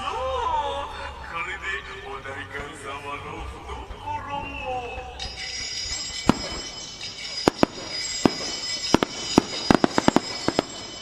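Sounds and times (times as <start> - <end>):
firework shells bursting: 5.2 - 11.0
fireworks crackling: 5.2 - 11.0.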